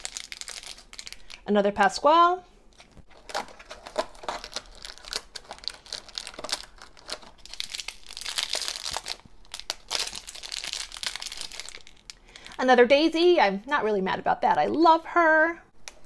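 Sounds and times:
foil bag crinkling: 0.0s - 1.5s, 2.7s - 12.6s.

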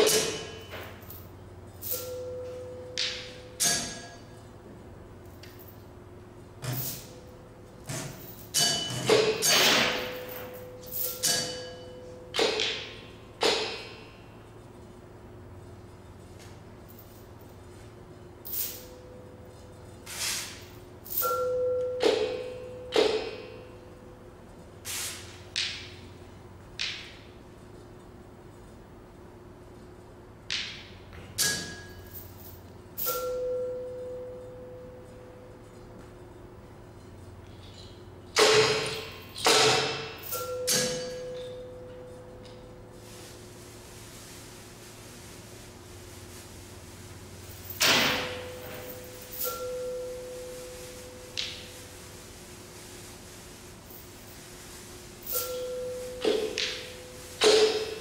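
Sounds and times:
percussion strikes with ringing tones: 1.8s - 4.5s, 6.6s - 14.2s, 21.0s - 24.0s, 31.4s - 36.4s, 37.0s - 43.0s, 47.6s - 52.0s, 55.2s - 58.0s
ringing metallic strikes: 38.4s - 42.5s, 47.7s - 51.8s, 55.3s - 58.0s.

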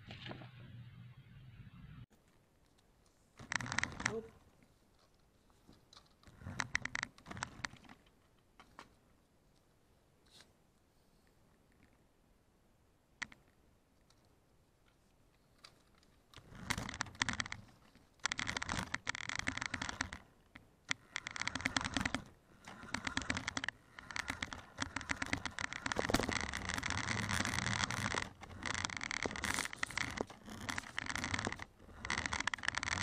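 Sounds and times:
clicking and wheel noise: 2.2s - 9.7s, 13.2s - 33.0s
toy car electric motor whirring: 20.9s - 33.0s.

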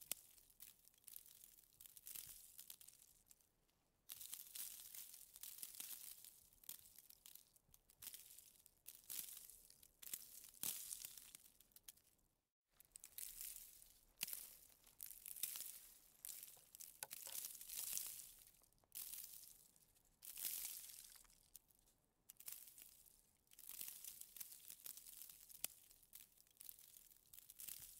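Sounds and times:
faint crunching of snow: 12.7s - 21.9s.

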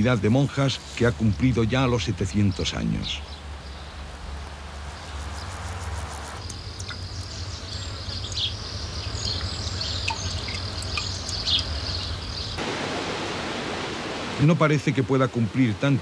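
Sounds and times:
small birds chirping: 0.0s - 12.6s
high insect buzz: 3.6s - 12.6s.

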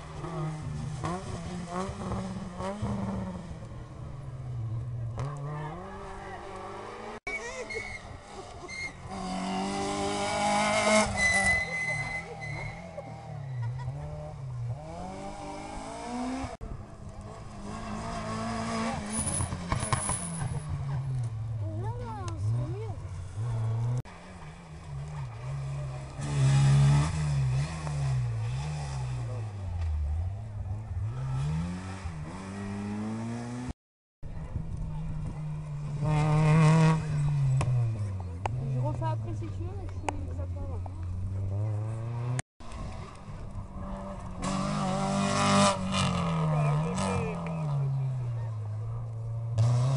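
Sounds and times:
rally car engines revving: 0.0s - 49.9s.

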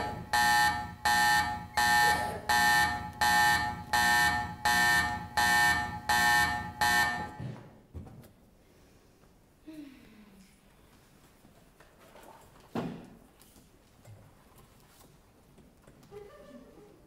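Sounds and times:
electronic alarm buzzer pulsing: 0.0s - 7.5s.

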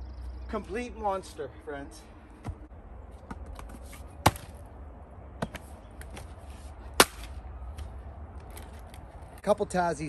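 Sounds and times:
axe chopping firewood: 4.2s - 4.6s, 7.0s - 7.3s.

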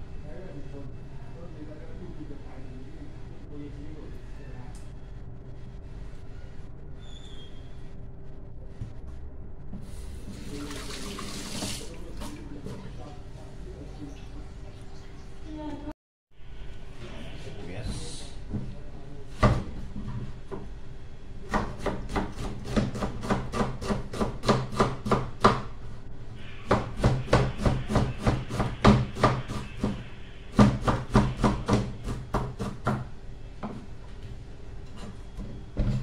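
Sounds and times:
knife chopping on cutting board: 21.5s - 25.7s, 26.7s - 33.8s.

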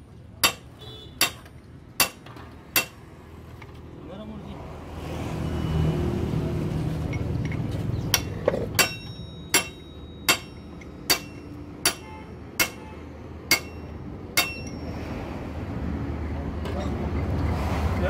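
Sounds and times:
hammer strikes on steel: 0.4s - 3.1s, 8.1s - 15.1s.

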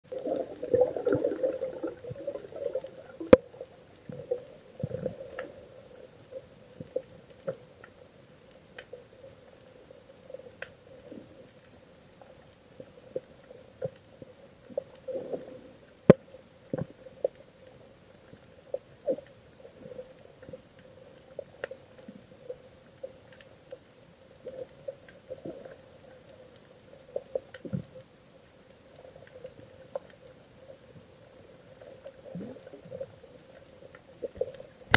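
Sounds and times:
underwater low hum: 0.0s - 34.9s
underwater gurgling pops and clicks: 0.1s - 5.6s.

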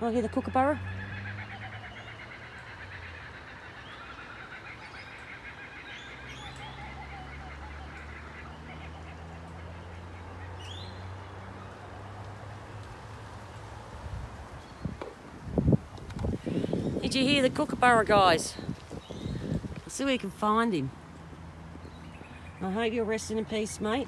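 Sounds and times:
kookaburra calling: 0.0s - 12.8s.

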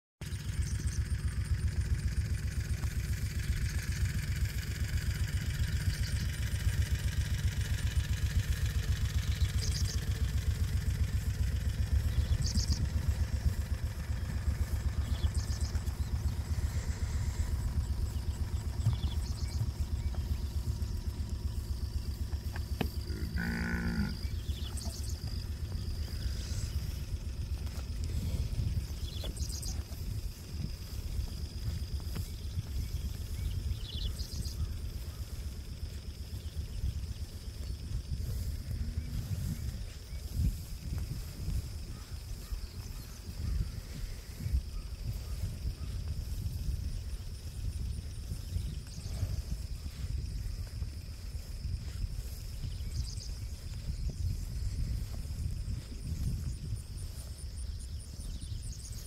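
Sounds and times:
wind buffeting microphone: 7.5s - 59.0s
cow mooing: 23.0s - 24.3s.

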